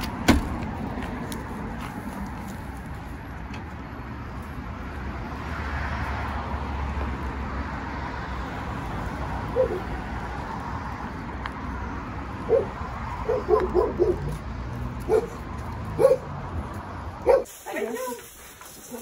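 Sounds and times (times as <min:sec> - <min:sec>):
passing car rumble: 0:00.0 - 0:17.4
street ambience: 0:00.0 - 0:19.0.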